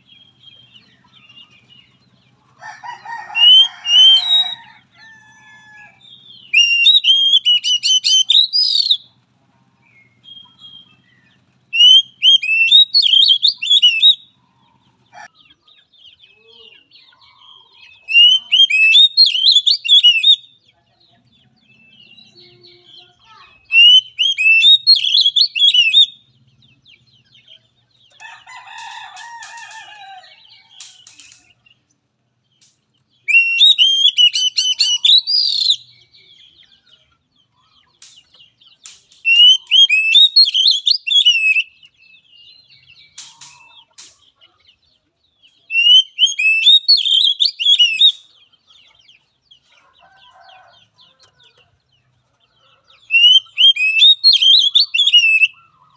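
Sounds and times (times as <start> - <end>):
fainter lower bird call: 2.6 - 9.2, 9.9 - 15.3, 16.2 - 20.6, 22.0 - 26.4, 33.2 - 36.3, 39.2 - 41.9, 45.6 - 48.4, 52.6 - 55.9
bird whistling rapid high notes: 23.7 - 26.0, 33.3 - 35.8, 39.2 - 41.6, 45.8 - 48.1.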